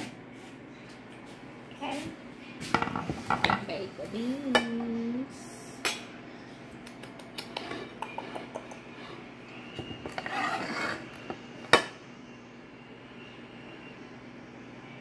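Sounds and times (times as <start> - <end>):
metal spoon scraping a pot: 7.6 - 9.2, 10.0 - 11.2.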